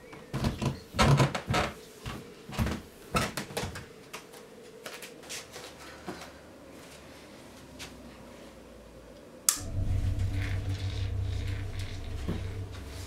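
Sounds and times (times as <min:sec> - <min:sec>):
steady low hum: 0:09.4 - 0:13.0.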